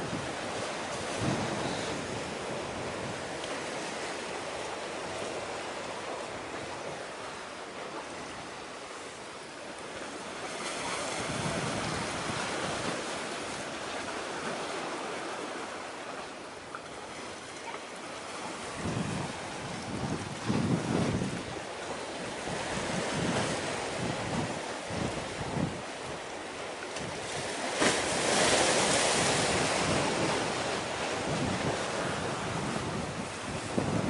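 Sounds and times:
wind buffeting microphone: 0.0s - 7.1s, 10.5s - 14.9s, 18.4s - 34.0s
sea waves washing: 0.0s - 34.0s.

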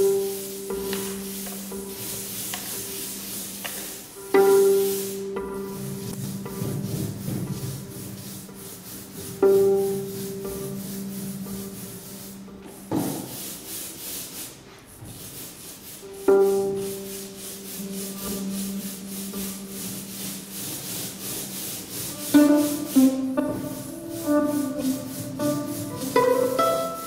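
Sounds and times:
rubbing scraping noise: 0.0s - 27.0s
plucked string notes: 4.1s - 12.6s, 16.1s - 20.7s, 21.9s - 27.0s.

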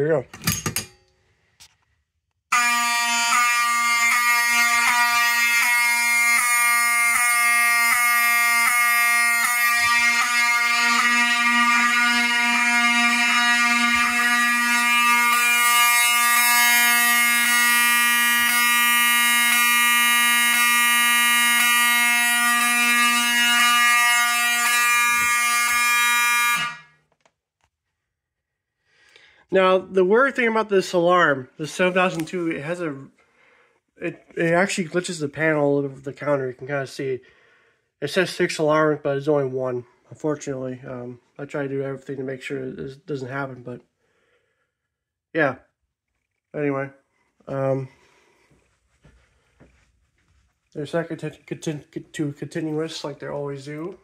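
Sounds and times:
buzzy fire alarm horn: 2.5s - 27.1s.

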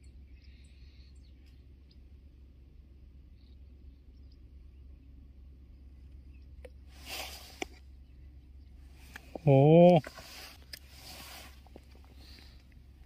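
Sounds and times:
steady low rumble: 0.0s - 9.6s
small birds chirping: 0.0s - 13.0s.

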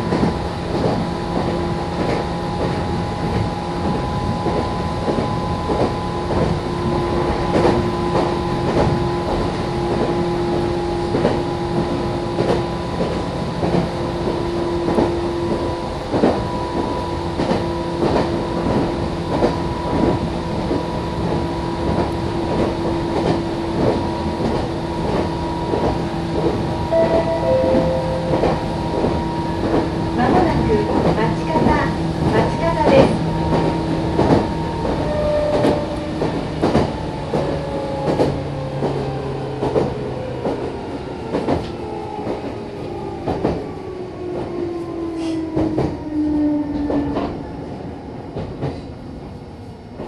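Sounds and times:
train motor whine and rumble: 0.0s - 50.0s
two-note chime: 26.9s - 29.9s.

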